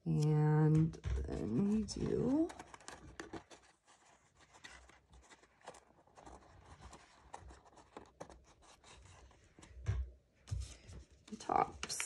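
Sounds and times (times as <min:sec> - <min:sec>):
paper rustling: 0:00.8 - 0:09.8.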